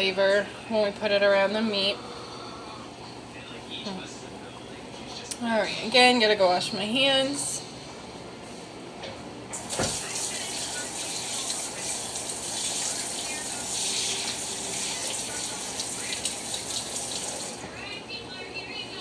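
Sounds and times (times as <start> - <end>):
faucet water running: 9.6 - 17.7.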